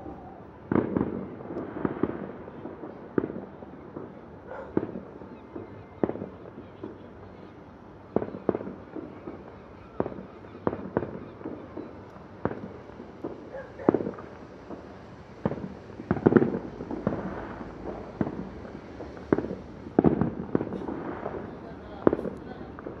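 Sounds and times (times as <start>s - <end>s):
distant fireworks bangs: 0.0s - 23.0s
steady low rumble: 11.3s - 23.0s.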